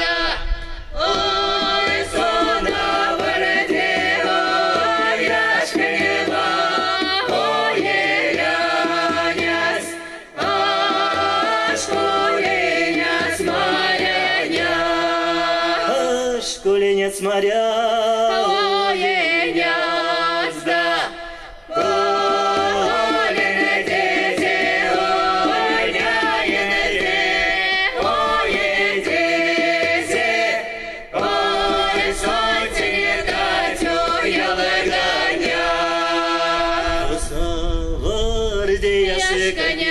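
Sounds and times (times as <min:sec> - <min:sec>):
male and female voices singing: 0:00.0 - 0:39.9
hand drum: 0:01.0 - 0:16.0, 0:21.7 - 0:35.8.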